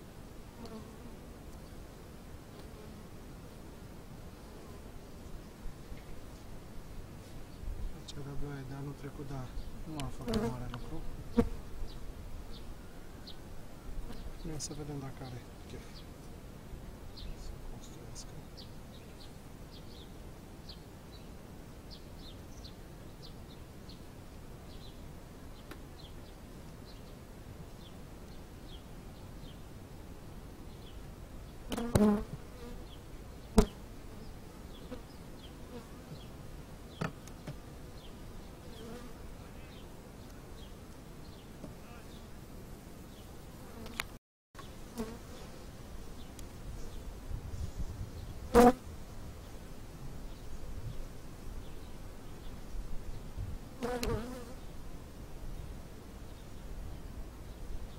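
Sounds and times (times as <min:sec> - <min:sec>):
honey bees buzzing: 0:08.8 - 0:12.7, 0:31.7 - 0:40.0, 0:44.7 - 0:47.1, 0:53.7 - 0:54.6.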